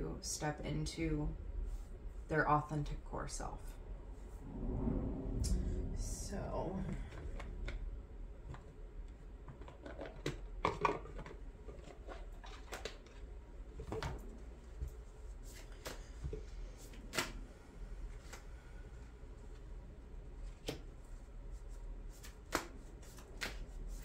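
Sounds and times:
cards rustling and flicking: 0:15.4 - 0:17.4, 0:22.1 - 0:24.0.

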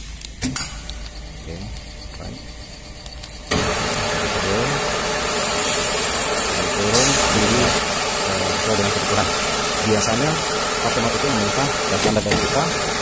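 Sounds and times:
electric hoist running: 0:00.0 - 0:13.0
thin high whine: 0:00.0 - 0:13.0.

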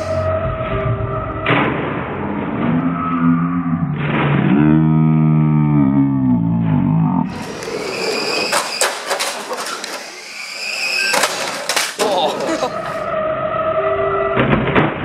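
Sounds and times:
low wavering drone: 0:00.0 - 0:07.7, 0:12.2 - 0:15.0
toy cars whining: 0:07.3 - 0:13.2.

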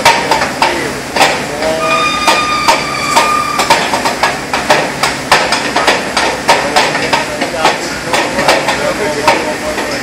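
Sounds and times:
hammering on steel: 0:00.0 - 0:10.0
high whistle-like tone: 0:01.8 - 0:03.8.

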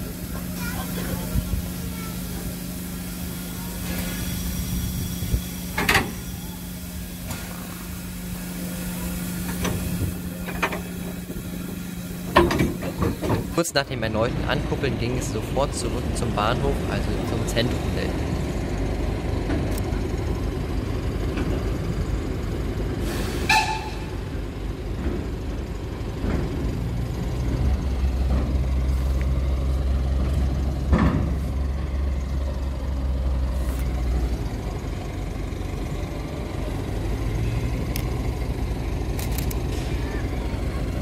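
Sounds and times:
steam locomotive low rumble: 0:00.0 - 0:41.0
steam whistle toot: 0:23.1 - 0:24.3.

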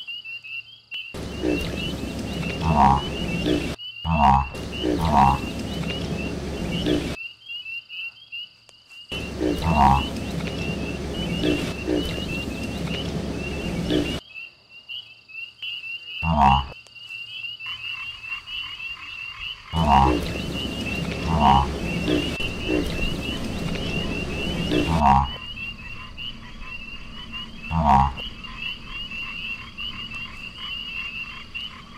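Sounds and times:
frog croaks: 0:01.2 - 0:07.2, 0:09.1 - 0:14.3, 0:16.2 - 0:16.8, 0:17.6 - 0:31.9
high chirping chorus: 0:01.2 - 0:07.2, 0:09.1 - 0:14.2, 0:18.6 - 0:31.9.

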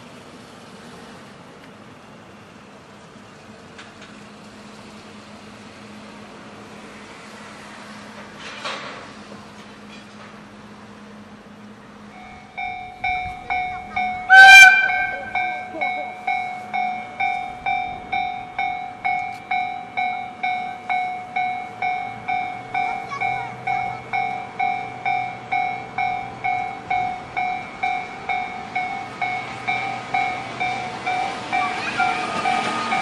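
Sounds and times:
locomotive engine and wheels: 0:00.0 - 0:33.0
level-crossing bell ringing: 0:12.2 - 0:33.0.

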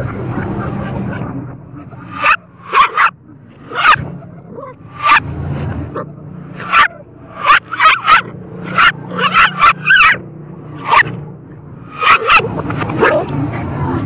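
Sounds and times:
dog barking: 0:00.6 - 0:05.3, 0:05.9 - 0:11.2, 0:11.9 - 0:13.4.

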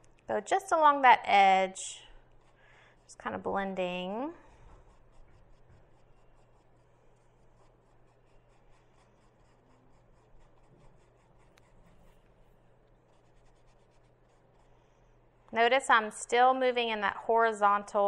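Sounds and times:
paintbrush scratching on canvas: 0:01.6 - 0:15.0.

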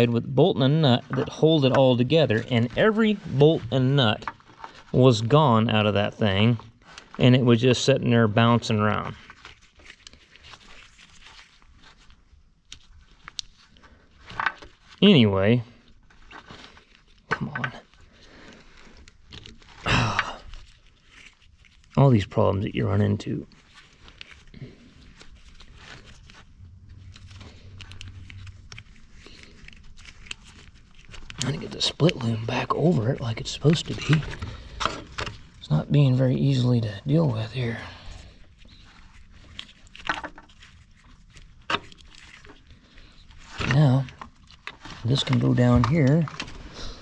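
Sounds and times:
plastic tubing rustling and crinkling: 0:00.0 - 0:47.0
plastic scrape: 0:23.5 - 0:35.8.

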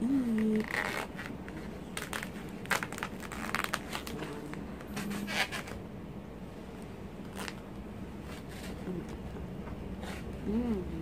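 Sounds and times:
styrofoam box rustling and crinkling: 0:00.5 - 0:05.8.

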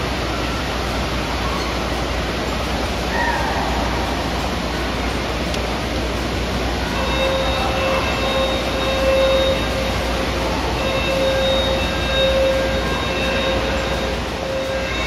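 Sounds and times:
steady horn-like tone: 0:06.9 - 0:15.0.

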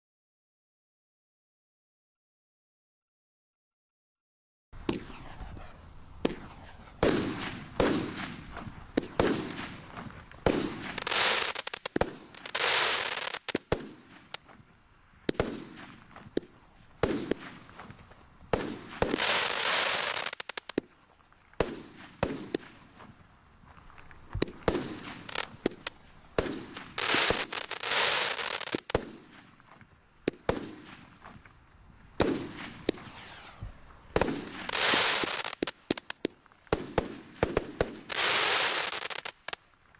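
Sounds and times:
firework hiss: 0:04.8 - 0:39.6
firework launch thumps: 0:06.2 - 0:11.1
firework shell bursts: 0:32.2 - 0:39.6.

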